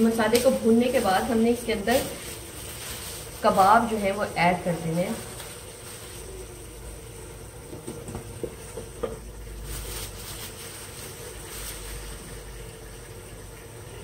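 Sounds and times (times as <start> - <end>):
gravy sizzling and bubbling: 0.0 - 14.0.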